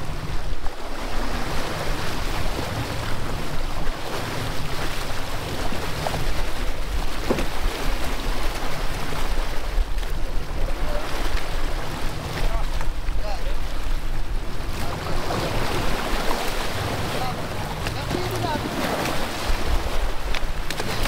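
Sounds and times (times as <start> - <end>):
boat engine rumbling: 0.0 - 21.0
churning sea water: 0.0 - 21.0
wind on microphone: 0.0 - 21.0.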